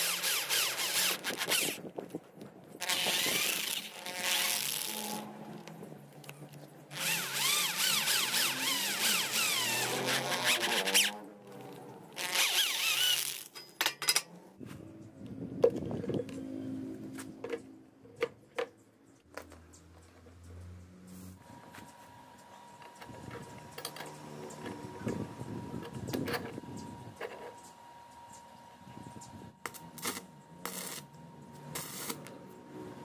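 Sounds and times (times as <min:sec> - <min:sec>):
power drill boring through steel pipe: 0:00.0 - 0:01.8, 0:02.8 - 0:05.3, 0:06.9 - 0:11.2, 0:12.2 - 0:13.5.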